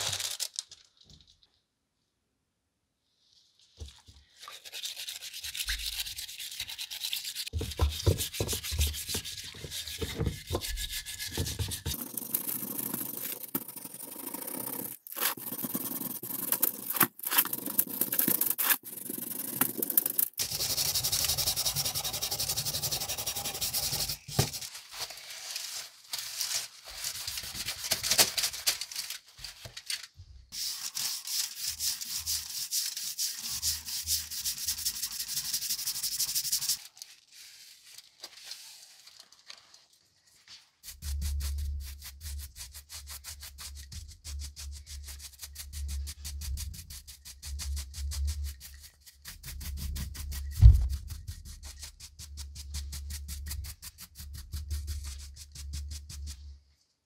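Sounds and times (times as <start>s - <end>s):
plastic scraper scraping paint: 4.5s - 24.7s.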